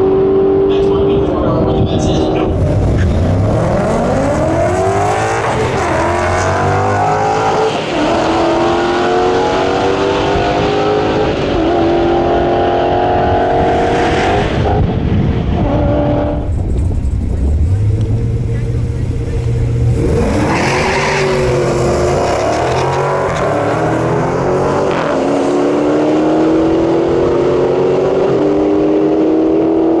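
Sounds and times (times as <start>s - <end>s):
cars accelerating at full throttle: 0.0s - 30.0s.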